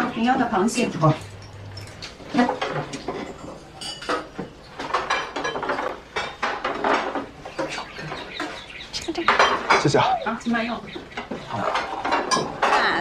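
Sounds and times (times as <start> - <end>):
dishes set down clinking: 1.4 - 8.6, 11.2 - 12.9.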